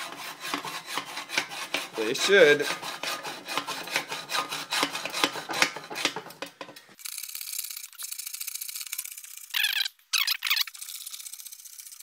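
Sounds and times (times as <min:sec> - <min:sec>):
hacksaw rasping: 0:00.0 - 0:06.9.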